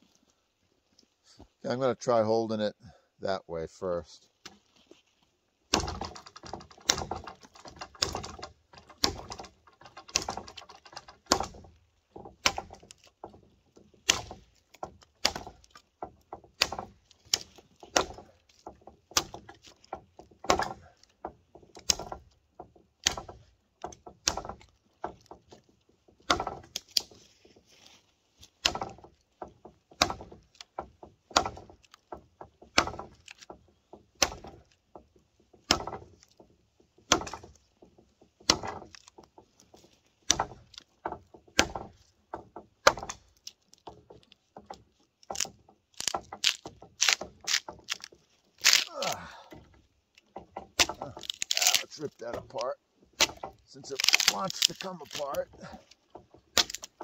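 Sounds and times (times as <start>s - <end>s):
machete chopping into wood: 5.7s - 11.7s, 12.3s - 13.1s, 14.0s - 15.8s, 16.6s - 18.4s, 19.1s - 19.8s, 20.4s - 21.0s, 21.7s - 22.3s, 23.0s - 23.5s, 24.2s - 25.2s, 26.2s - 27.2s, 28.6s - 29.1s, 29.9s - 30.7s, 31.3s - 31.8s, 32.7s - 33.5s, 34.2s - 34.7s, 35.6s - 36.1s, 37.1s - 37.6s, 38.4s - 39.1s, 40.2s - 42.0s, 42.8s - 43.6s, 44.7s - 49.7s, 50.6s - 55.9s, 56.5s - 57.0s.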